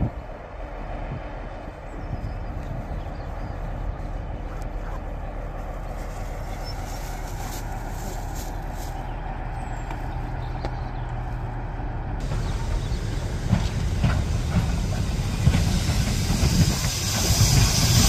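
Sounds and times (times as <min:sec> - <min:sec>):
diesel locomotive engine running: 0:00.0 - 0:18.0
short air hisses: 0:12.4 - 0:18.0.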